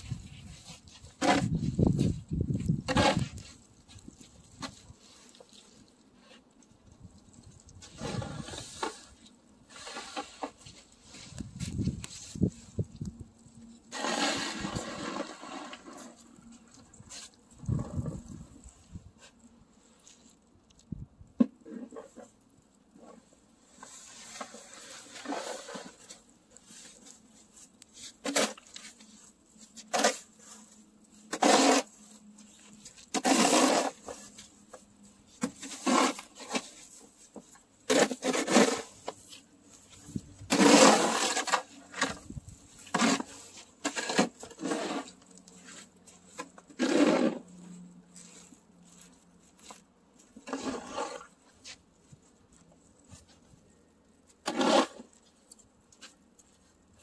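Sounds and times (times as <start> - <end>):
snow shovel scraping snow: 0.0 - 3.6, 7.8 - 12.6, 13.9 - 16.2, 23.8 - 27.1, 28.0 - 29.0, 29.8 - 32.1, 33.1 - 34.5, 35.4 - 37.0, 37.9 - 39.3, 40.5 - 45.1, 46.4 - 49.1, 50.4 - 51.8, 54.4 - 55.2.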